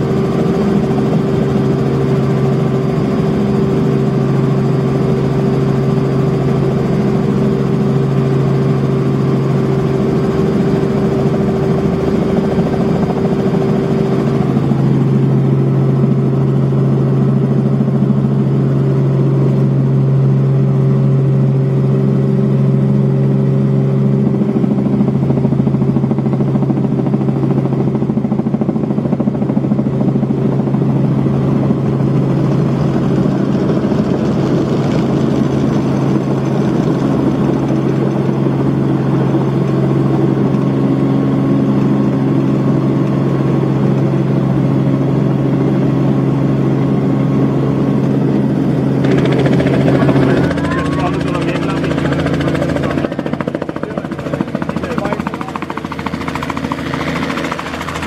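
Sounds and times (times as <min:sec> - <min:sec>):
helicopter engine and rotors droning: 0:00.0 - 0:58.0.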